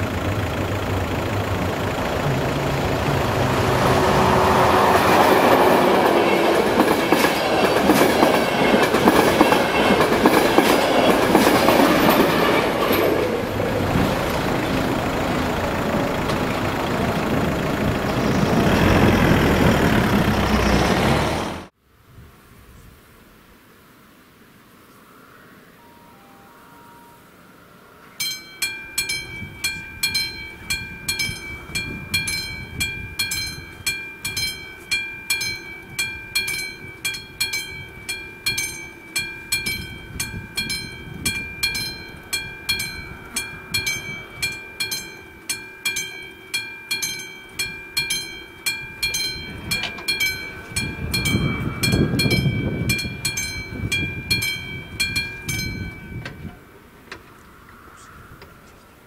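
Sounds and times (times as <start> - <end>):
level crossing warning bell: 0.0 - 19.1, 28.1 - 56.7
low rumble: 13.3 - 21.6.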